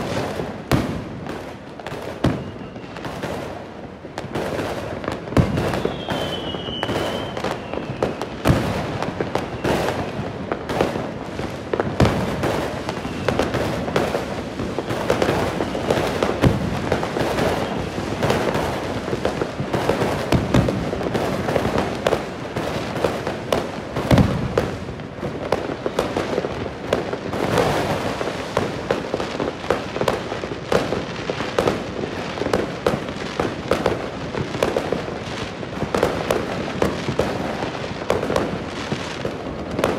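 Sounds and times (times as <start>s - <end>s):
fireworks crackling and banging: 0.0s - 39.9s
falling firework whistle: 1.9s - 3.5s, 5.3s - 10.8s, 11.8s - 21.9s.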